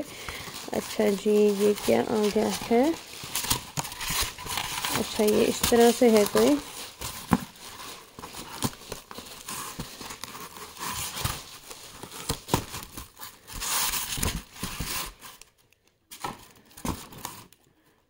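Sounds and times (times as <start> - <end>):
packaging crinkling and rustling: 0.0 - 17.9.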